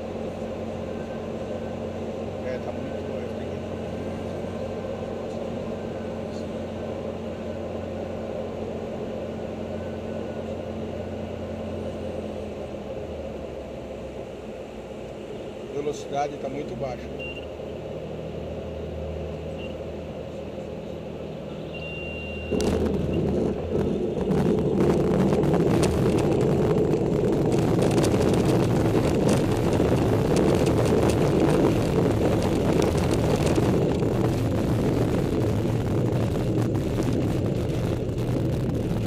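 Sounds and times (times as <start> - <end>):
landing gear rumbling on runway: 22.4 - 39.0.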